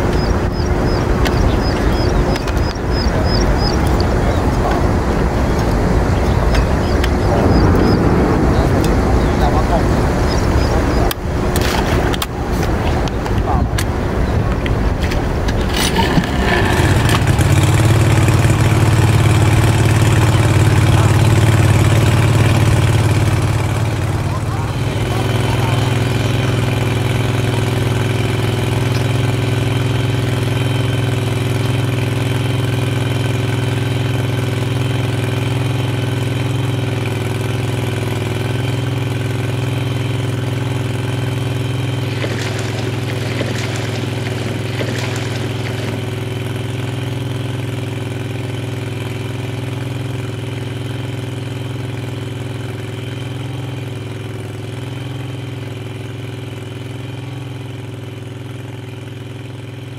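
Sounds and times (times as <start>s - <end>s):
outboard motor running: 0.0s - 59.9s
rough noise: 15.0s - 17.8s.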